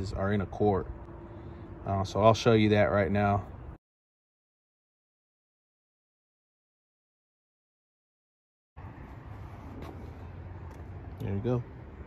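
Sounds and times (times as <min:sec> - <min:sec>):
outdoor background noise with low rumble: 0:00.0 - 0:03.8, 0:08.8 - 0:12.0.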